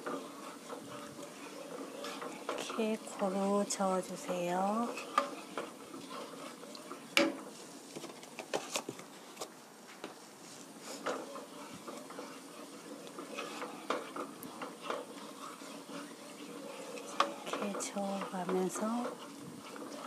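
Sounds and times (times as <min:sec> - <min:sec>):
spoon clacking against pan: 0:00.0 - 0:07.6, 0:11.0 - 0:20.0
wooden spoon scraping a pan: 0:00.0 - 0:20.0.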